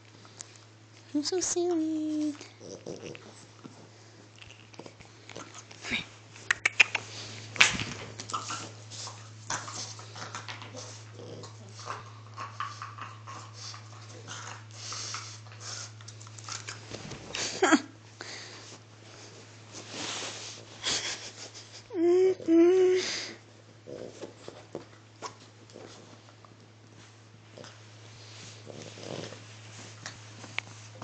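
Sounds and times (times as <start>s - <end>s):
dog scuffling and rustling: 19.0s - 20.8s.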